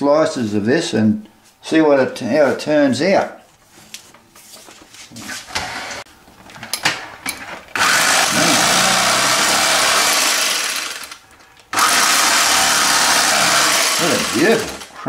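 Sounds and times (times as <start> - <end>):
electric knife sawing bread crust: 7.8 - 11.2, 11.8 - 14.9.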